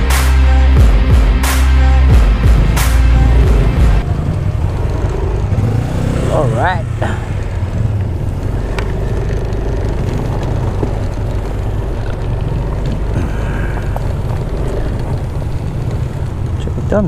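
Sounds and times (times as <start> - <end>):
scooter engine riding on gravel: 4.0 - 17.0.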